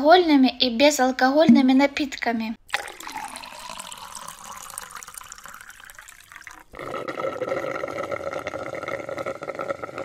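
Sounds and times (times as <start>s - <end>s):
liquid pouring in a stream: 2.7s - 7.8s.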